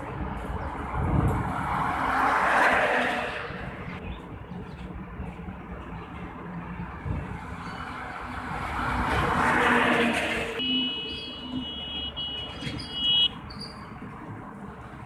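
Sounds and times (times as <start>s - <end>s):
truck passing on highway: 0.0s - 4.0s, 6.3s - 11.7s.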